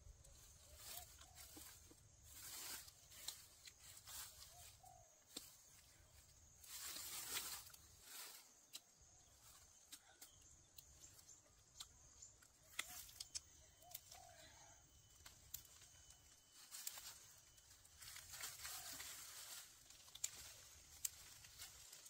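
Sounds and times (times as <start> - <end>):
soft rustle: 0.2 - 10.0, 13.9 - 22.0
faint scattered clicks: 9.8 - 14.4, 19.0 - 22.0.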